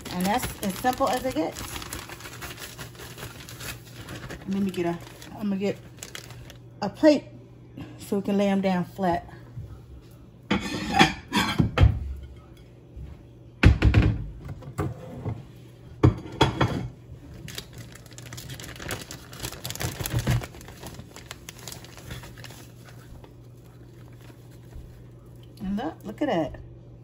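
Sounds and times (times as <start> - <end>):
plastic bag crinkling: 0.0 - 6.8, 17.2 - 25.6
plates clattering on a counter: 10.5 - 12.5, 16.0 - 17.0.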